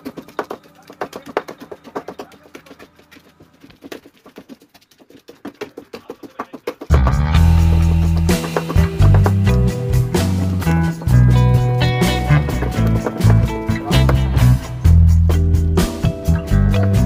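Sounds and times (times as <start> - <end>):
loud background music: 6.9 - 17.0.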